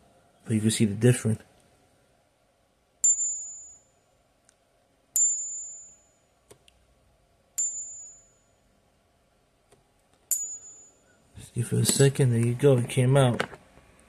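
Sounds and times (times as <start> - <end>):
coin ringing when tapped: 3.0 - 3.9, 5.2 - 6.2, 7.6 - 8.6, 10.3 - 11.0.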